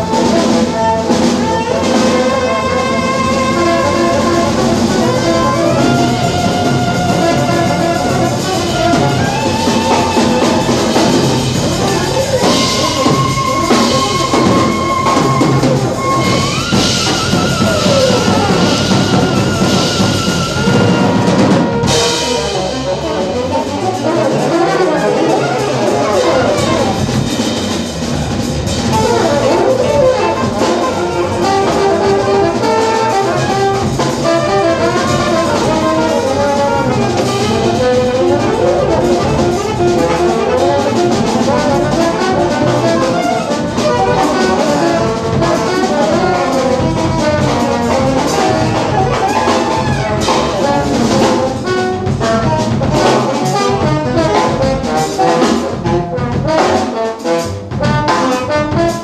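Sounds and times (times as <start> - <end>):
drum kit: 0.0 - 59.0
saxophone: 0.0 - 59.0
trombone: 0.0 - 59.0
upright double bass: 0.0 - 59.0.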